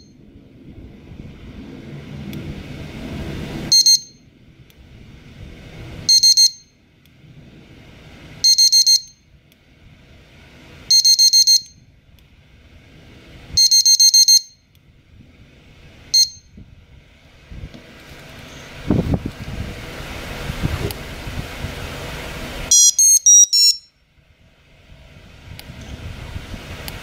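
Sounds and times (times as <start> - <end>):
bite alarm beeping: 3.7 - 4.2, 6.1 - 6.7, 8.4 - 9.2, 10.9 - 11.8, 13.6 - 14.6, 16.1 - 16.5, 22.7 - 24.0.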